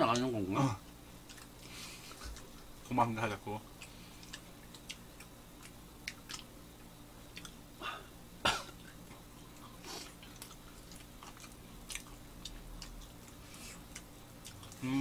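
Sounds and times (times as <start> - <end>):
chewing toast crunches: 1.2 - 3.0, 3.7 - 6.5, 7.3 - 7.6, 8.7 - 14.9.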